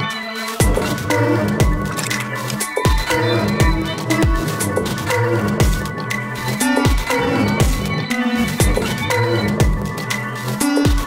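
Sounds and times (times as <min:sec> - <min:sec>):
electronic music: 0:00.0 - 0:11.0
held bass line: 0:00.0 - 0:11.0
deep kick drum thuds: 0:01.6 - 0:01.8, 0:05.6 - 0:05.8, 0:09.6 - 0:09.9
high clicks: 0:01.8 - 0:03.2.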